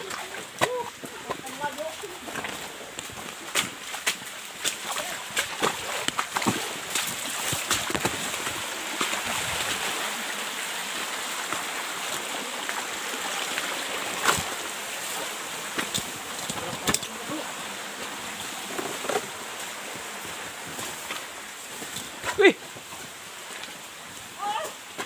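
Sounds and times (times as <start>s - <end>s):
stream running over rocks: 0.0s - 25.0s.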